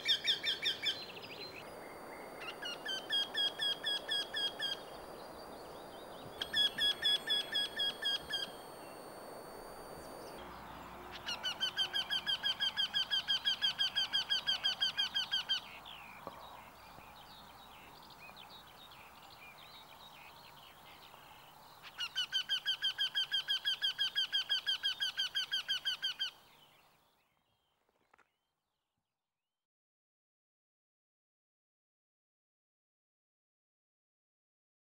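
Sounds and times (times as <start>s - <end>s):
bird calling repeated notes: 0.0s - 5.0s, 6.3s - 9.2s, 10.0s - 16.8s, 21.8s - 26.4s.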